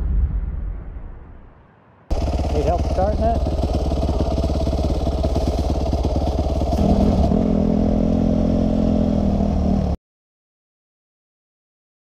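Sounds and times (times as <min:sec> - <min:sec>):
dirt bike engine riding along: 0:02.1 - 0:10.0
dirt bike idling: 0:02.1 - 0:10.0.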